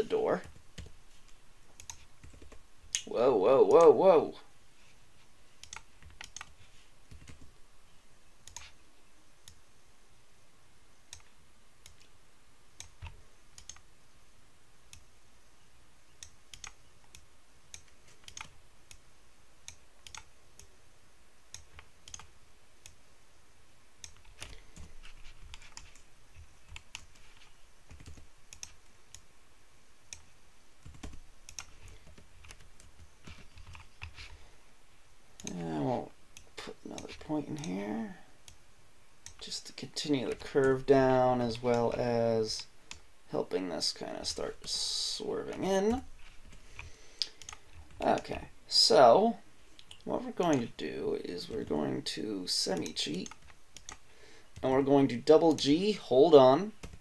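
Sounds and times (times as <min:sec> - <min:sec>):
keyboard and mouse clicking: 0:01.8 - 0:03.1, 0:05.6 - 0:07.5, 0:08.4 - 0:08.8, 0:12.8 - 0:13.9, 0:16.2 - 0:19.0, 0:19.6 - 0:20.7, 0:21.5 - 0:23.0, 0:24.0 - 0:29.3, 0:30.1 - 0:34.4, 0:35.4 - 0:35.6, 0:45.5 - 0:48.3, 0:52.8 - 0:54.0.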